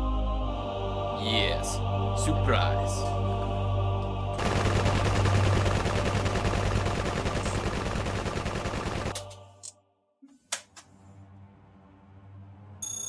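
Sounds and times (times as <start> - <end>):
low droning music: 0.0 - 9.9, 10.8 - 12.8
machine gun fire: 4.4 - 9.2.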